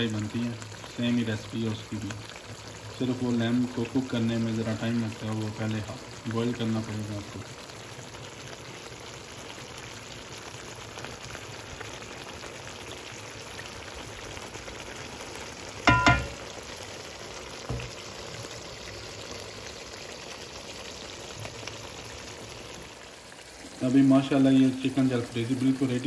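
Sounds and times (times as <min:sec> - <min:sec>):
curry sizzling and bubbling: 0:00.0 - 0:26.0
sharp clank: 0:15.9 - 0:16.4
soft knock: 0:15.9 - 0:16.4, 0:17.7 - 0:18.0.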